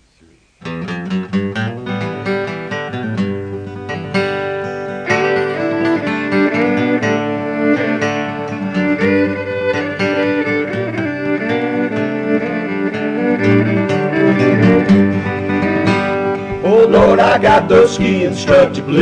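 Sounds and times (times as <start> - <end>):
acoustic guitar playing: 0.6 - 19.0
fiddle sliding between notes: 4.7 - 19.0.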